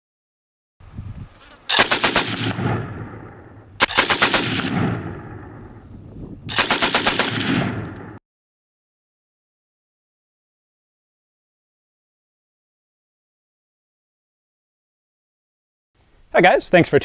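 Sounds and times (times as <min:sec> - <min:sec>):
machine gun bursts echoing: 0:01.7 - 0:05.4, 0:06.5 - 0:08.2.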